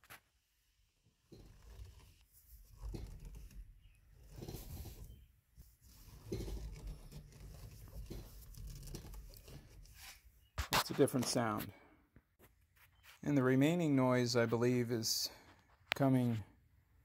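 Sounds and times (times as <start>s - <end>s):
suspension creaking and crunching: 1.2s - 10.3s.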